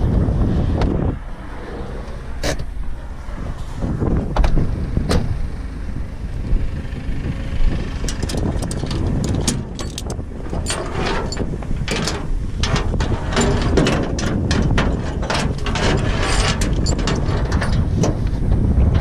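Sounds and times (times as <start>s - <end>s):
truck engine rumbling: 0.0s - 19.0s
metallic clicks and rattles: 8.0s - 19.0s.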